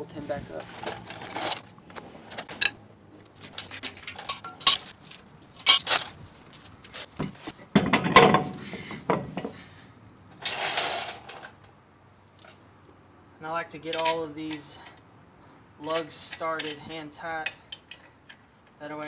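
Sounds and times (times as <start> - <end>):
heavy wheel clunk: 7.2 - 9.7, 10.4 - 11.6
metallic clinks of wheel nuts: 13.8 - 15.1, 15.8 - 18.8.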